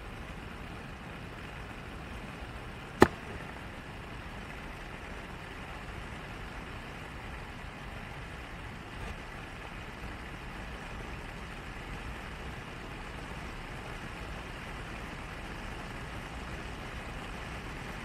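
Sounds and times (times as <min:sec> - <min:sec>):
car engine and road rumble: 0:00.0 - 0:18.0
sharp knock: 0:03.0 - 0:03.4.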